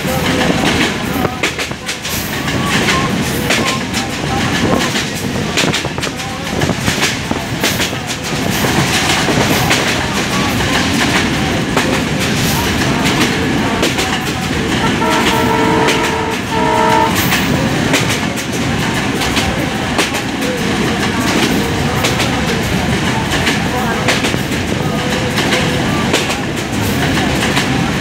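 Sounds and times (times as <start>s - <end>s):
train rushing noise: 0.0s - 28.0s
train horn blasts: 14.8s - 17.6s.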